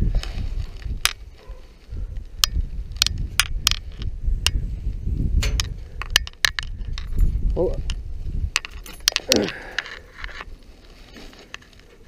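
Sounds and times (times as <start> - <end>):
steady low rumble: 0.0 - 9.0
sharp clicks and knocks: 2.4 - 4.6, 5.4 - 10.5.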